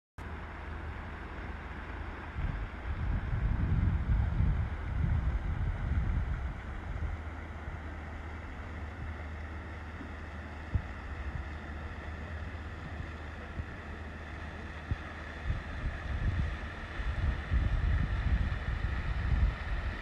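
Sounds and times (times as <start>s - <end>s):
wind rumbling on microphone: 0.3s - 20.0s.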